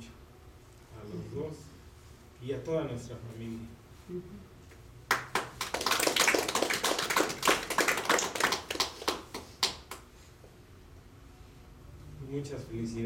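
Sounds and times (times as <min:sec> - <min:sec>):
small group applauding: 0:05.1 - 0:10.1.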